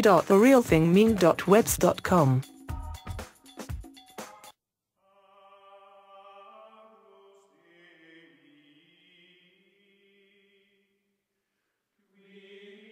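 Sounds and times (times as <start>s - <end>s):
choir holding long notes: 5.1s - 9.5s.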